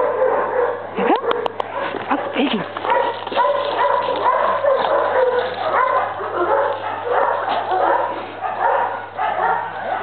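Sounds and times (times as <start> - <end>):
dogs yipping and whining: 2.8 - 10.0.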